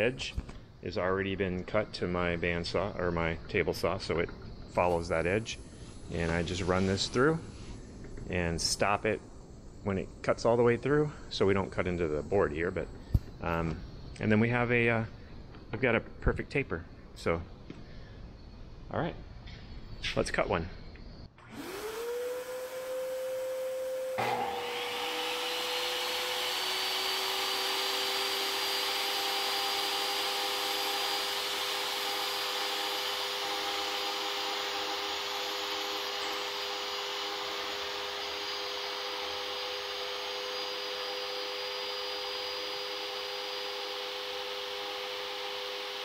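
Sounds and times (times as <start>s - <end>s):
steady motor hum: 21.4s - 46.0s
table saw motor whine: 21.4s - 46.0s.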